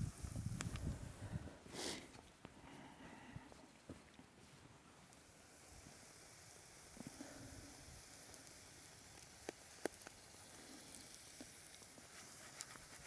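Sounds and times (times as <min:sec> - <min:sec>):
oil sizzling in a pan: 0:05.2 - 0:13.0.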